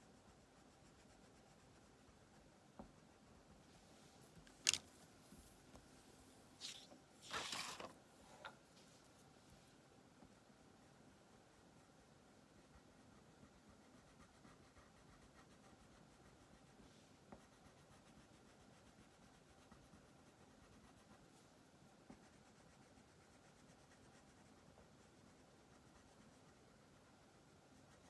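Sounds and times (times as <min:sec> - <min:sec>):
crayon scratching on paper: 0:11.8 - 0:28.0.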